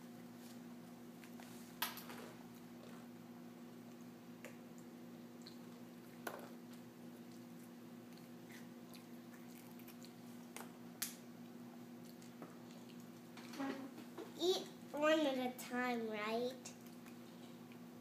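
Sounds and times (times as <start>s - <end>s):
steady low hum: 0.0s - 18.0s
toddler chewing: 4.0s - 10.7s, 12.0s - 13.7s.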